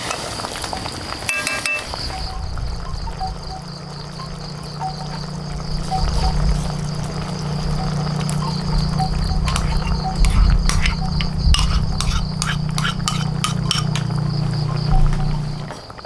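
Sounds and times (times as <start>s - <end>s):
high insect drone: 0.0s - 16.0s
low steady hum: 1.8s - 15.7s
hard objects clinking: 8.3s - 14.4s.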